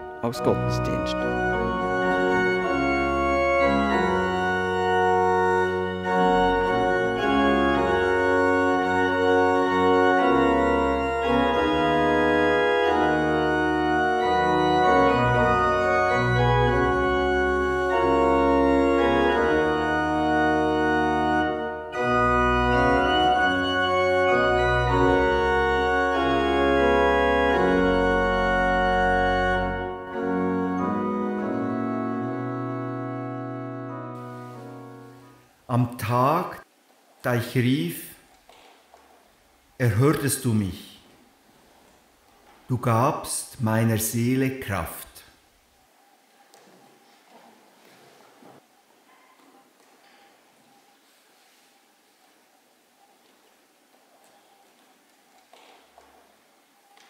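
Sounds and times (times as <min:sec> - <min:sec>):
church organ chords: 0:00.0 - 0:36.7.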